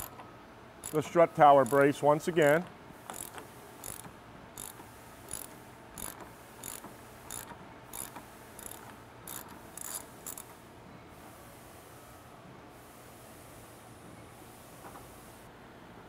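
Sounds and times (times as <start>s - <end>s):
ratchet wrench clicking: 0.8s - 10.5s.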